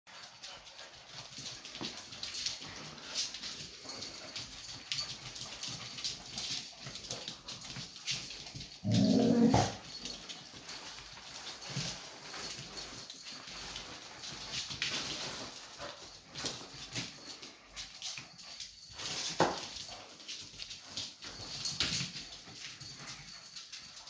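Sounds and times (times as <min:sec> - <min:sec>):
dog claws clicking on floor: 0:00.1 - 0:24.0
dog low vocalization: 0:08.8 - 0:09.8.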